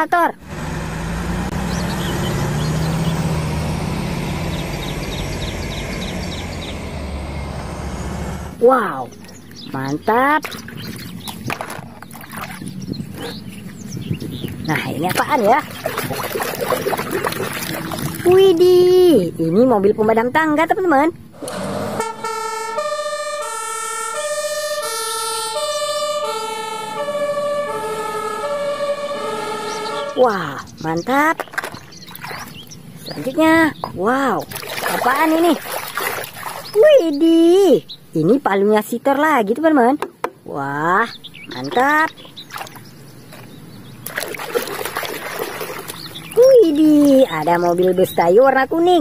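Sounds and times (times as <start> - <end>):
diesel engine running: 0.0 - 11.2
two-tone fire engine siren: 21.7 - 30.6.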